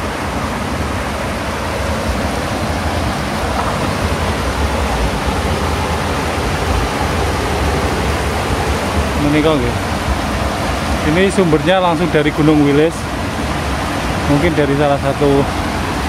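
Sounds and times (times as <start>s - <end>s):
water rushing through channel: 0.0s - 16.0s.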